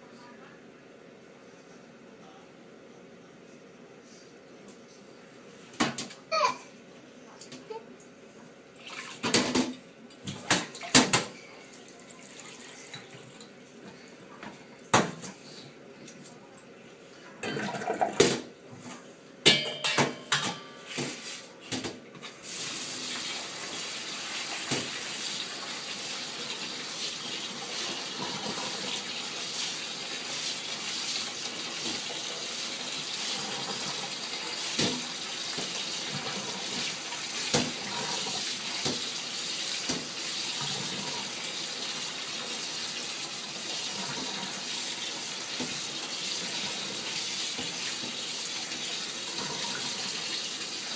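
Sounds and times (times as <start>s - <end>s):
metal bowl clink: 19.5s - 20.9s.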